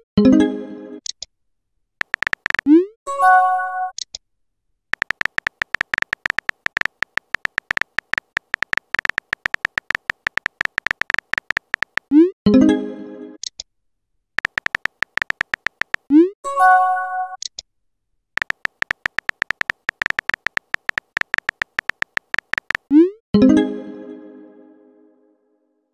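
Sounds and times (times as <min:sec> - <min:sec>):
keyboard typing clicks: 0:02.0 - 0:02.8, 0:04.9 - 0:12.2, 0:14.4 - 0:16.2, 0:18.4 - 0:23.0.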